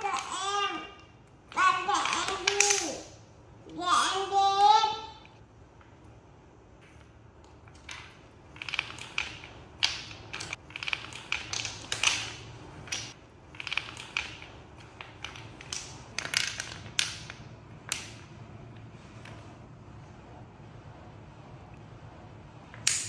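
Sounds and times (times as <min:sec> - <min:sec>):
wooden blocks clacking on tiled floor: 0:01.8 - 0:03.0, 0:07.6 - 0:18.3.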